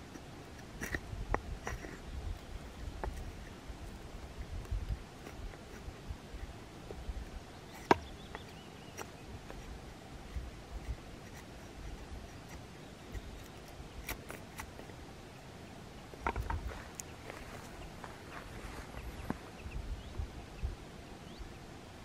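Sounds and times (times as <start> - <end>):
blade clicking and knocking in wood: 7.7 - 15.0, 16.1 - 17.1.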